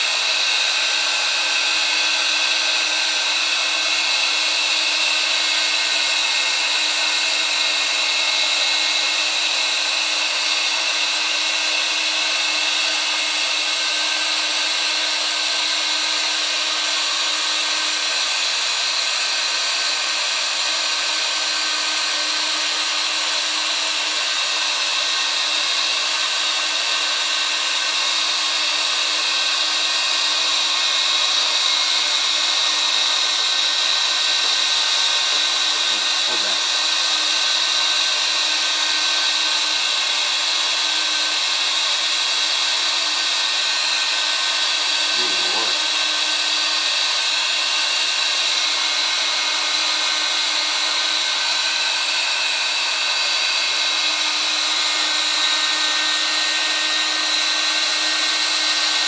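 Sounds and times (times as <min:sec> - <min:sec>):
heat gun blowing hot air: 0:00.0 - 0:59.0.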